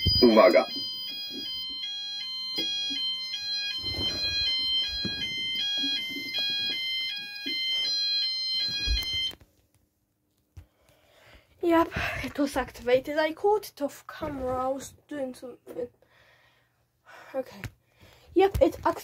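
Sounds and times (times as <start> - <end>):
two-tone fire alarm: 0.0 - 9.4.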